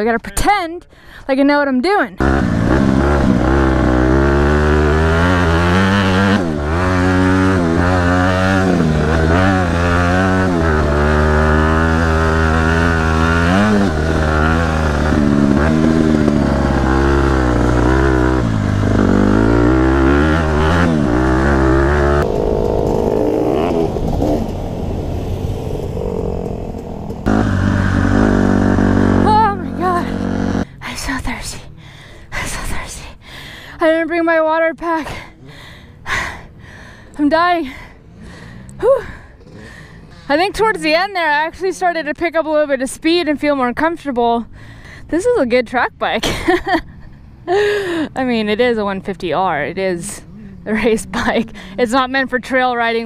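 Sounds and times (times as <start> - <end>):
dirt bike engine revving: 2.2 - 31.4, 47.6 - 53.0.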